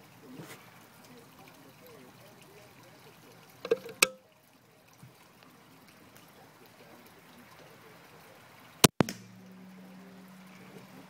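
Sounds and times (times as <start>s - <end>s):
low steady hum: 0.0s - 11.0s
crossbow firing snap: 8.8s - 9.5s
crack: 8.8s - 9.6s.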